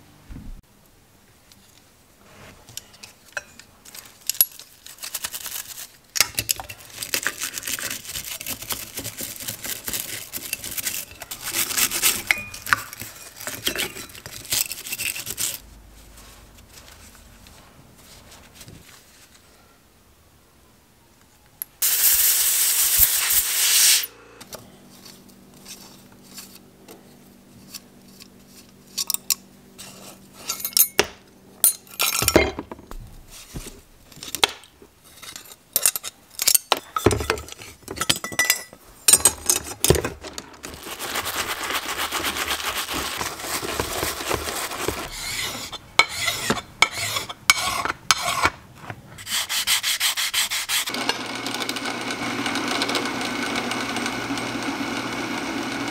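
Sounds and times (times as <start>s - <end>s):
short loud hiss: 21.8s - 24.4s
sanding sponge rubbing metal: 40.8s - 48.4s, 49.2s - 50.9s.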